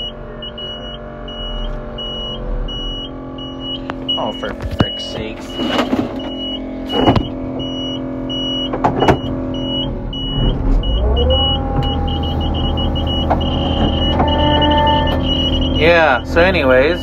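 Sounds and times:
engine running: 0:00.0 - 0:17.0
warning alarm beeping: 0:00.0 - 0:17.0.

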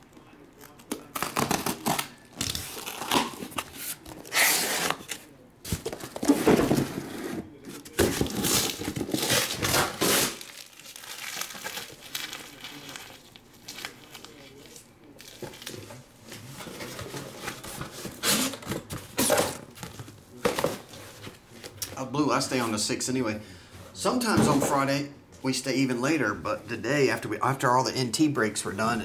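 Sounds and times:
cardboard flaps rustling and scraping: 0:03.4 - 0:10.4
box cutter slitting packing tape: 0:04.3 - 0:05.0, 0:08.2 - 0:10.5.

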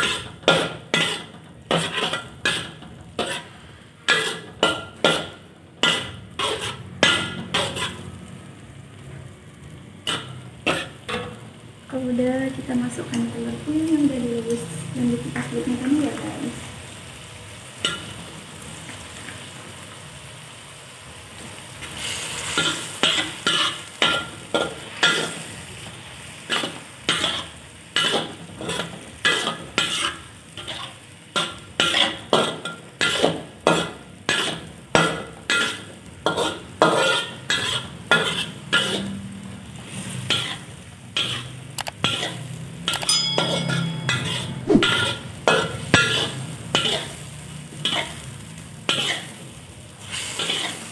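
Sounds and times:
metal spatula scraping wok: 0:00.0 - 0:09.2, 0:10.0 - 0:11.6, 0:17.8 - 0:18.3, 0:21.6 - 0:50.9
eggs sizzling in sauce: 0:00.0 - 0:50.9.

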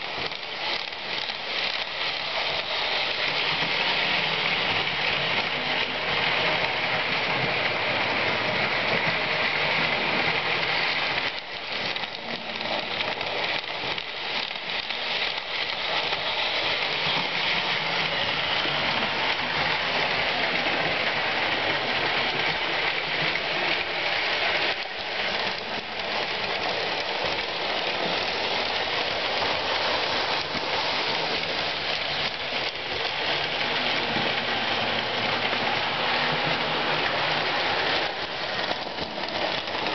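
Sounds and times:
toy train wheels rattling on track: 0:00.0 - 0:39.9.

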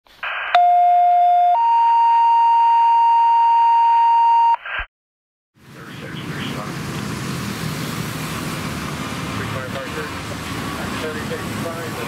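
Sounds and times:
two-tone radio page tones: 0:00.2 - 0:04.9.

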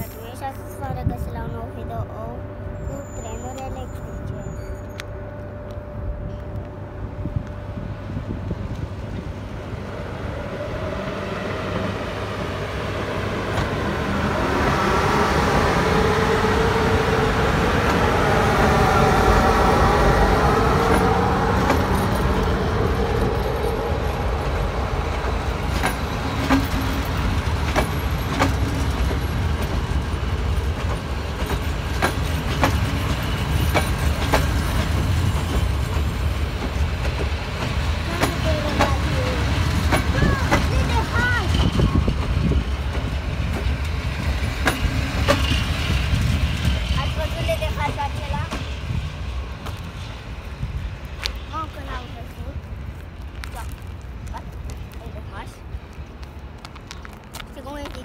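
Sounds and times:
train rumbling: 0:00.0 - 0:58.0
wheels clicking over rail joints: 0:20.8 - 0:49.0.

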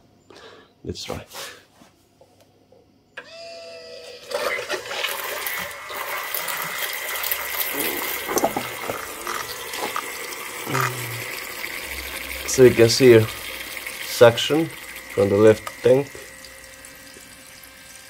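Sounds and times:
fuel pump motor whine: 0:03.2 - 0:18.0
fuel gushing and gurgling: 0:04.3 - 0:18.0.

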